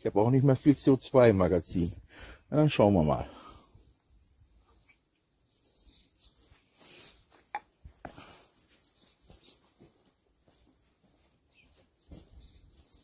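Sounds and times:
bird chirping: 0:00.8 - 0:02.2, 0:04.6 - 0:09.8, 0:11.4 - 0:13.0.

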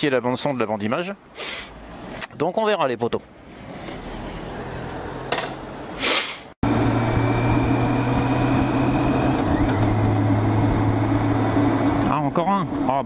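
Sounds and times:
motorcycle engine drone: 0:06.6 - 0:13.0.

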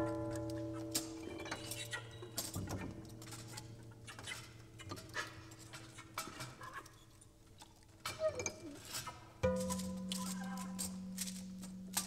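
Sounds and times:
small metallic clicks and clinks: 0:00.0 - 0:12.0.

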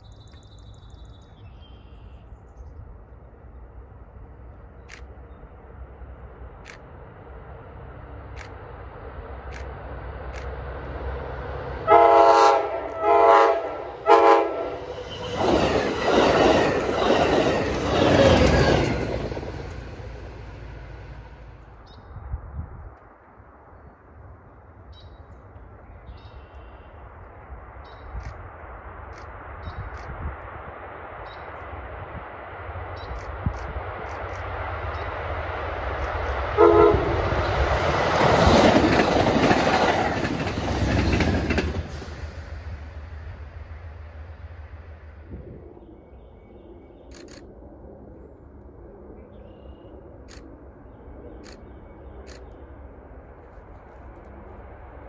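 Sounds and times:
train wheels on rails: 0:04.6 - 0:21.9, 0:27.2 - 0:45.3
train horn blasts: 0:11.8 - 0:14.9, 0:36.6 - 0:37.5
train wheels clattering over joints: 0:38.2 - 0:42.3.

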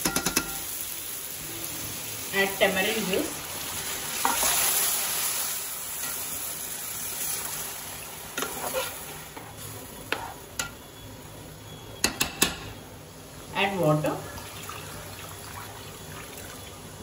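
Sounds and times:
spoon clinking against pot: 0:00.0 - 0:00.7, 0:12.0 - 0:12.7
liquid sizzling in hot oil: 0:00.0 - 0:17.0.

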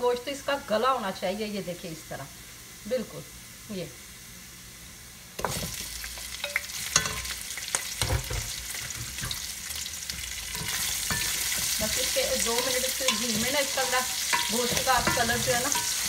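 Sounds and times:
meat sizzling in hot oil: 0:00.1 - 0:16.0
wooden spoon scraping a pot: 0:08.4 - 0:16.0.

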